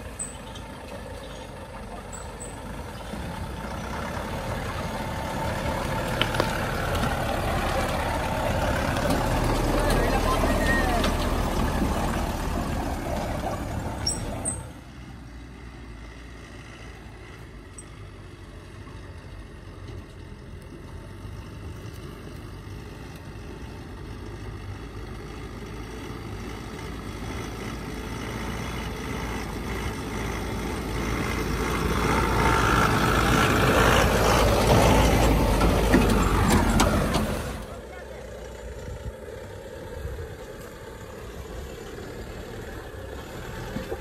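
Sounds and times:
truck engine passing: 0:00.0 - 0:44.0.

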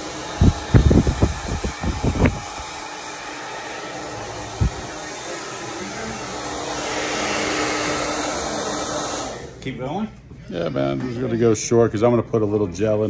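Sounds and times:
electric hair clippers buzzing: 0:03.5 - 0:09.5
low thumps: 0:04.6 - 0:04.9.

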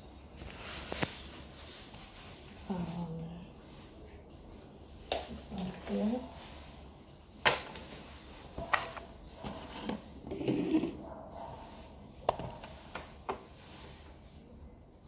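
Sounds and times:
muffled rustle: 0:00.3 - 0:10.1.

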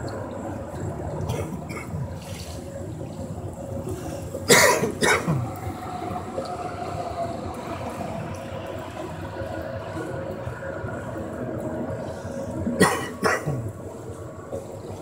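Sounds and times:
person coughing: 0:04.5 - 0:05.4, 0:12.8 - 0:13.6.

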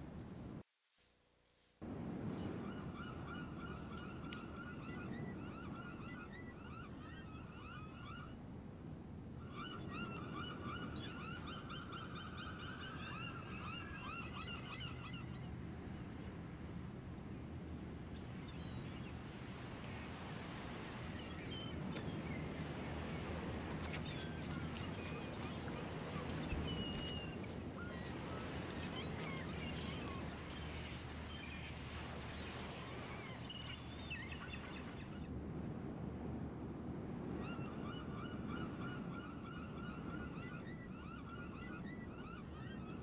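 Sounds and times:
birds chirping: 0:21.0 - 0:35.3.

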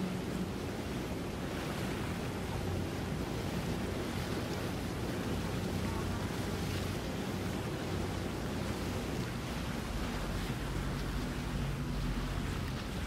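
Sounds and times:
boat engine hum: 0:00.0 - 0:13.0
waves: 0:00.0 - 0:13.0.

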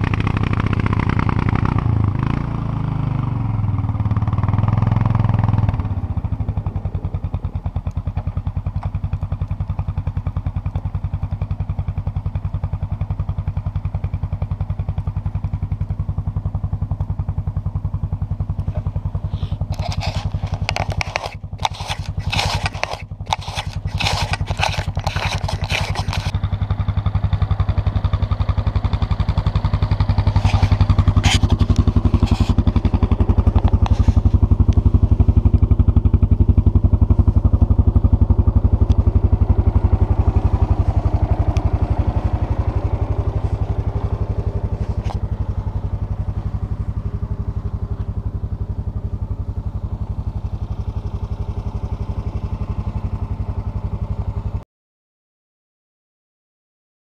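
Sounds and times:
quad engine running: 0:00.0 - 0:54.6
scraping brushing noises: 0:18.7 - 0:26.3, 0:30.2 - 0:32.9, 0:33.7 - 0:34.4.

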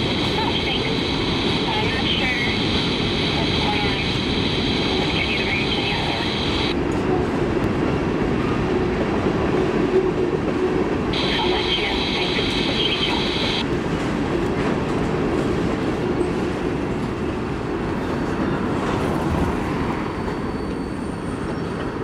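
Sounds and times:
freight train wheels rumbling: 0:00.0 - 0:22.0
high wheel squeal: 0:20.1 - 0:21.8.

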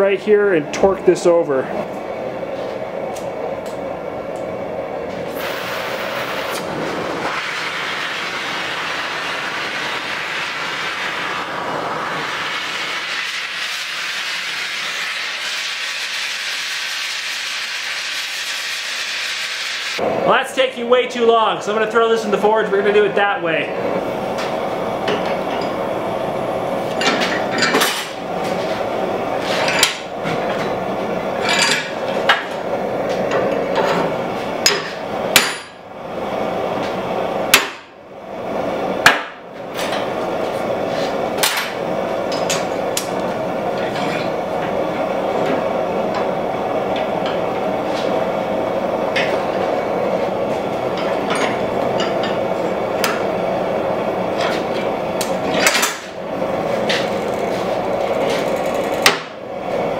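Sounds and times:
hammer striking hot steel: 0:34.6 - 0:35.8, 0:37.5 - 0:38.0, 0:39.0 - 0:40.1, 0:59.0 - 0:59.4.

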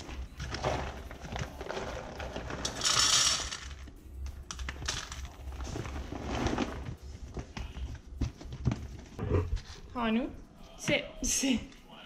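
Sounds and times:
kibble rattling into metal bowl: 0:00.4 - 0:03.9.

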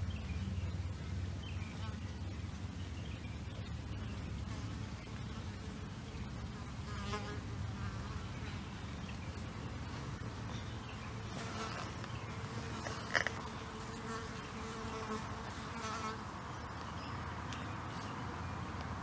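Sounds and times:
flying insect buzzing: 0:11.2 - 0:16.3.

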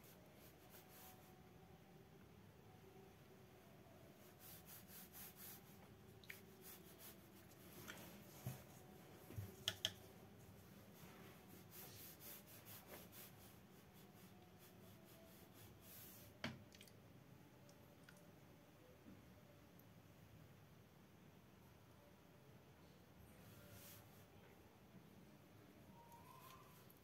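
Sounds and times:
brush stroking paper: 0:00.0 - 0:01.3, 0:04.2 - 0:09.3, 0:10.5 - 0:16.3.

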